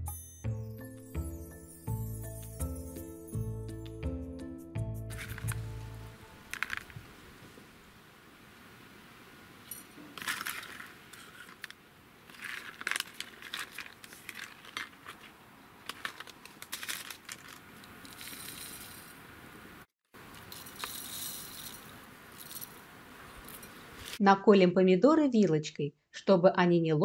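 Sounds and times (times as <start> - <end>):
seeds rattling into glass jars: 5.1 - 5.7, 6.4 - 7.0, 9.6 - 19.2, 20.2 - 22.8.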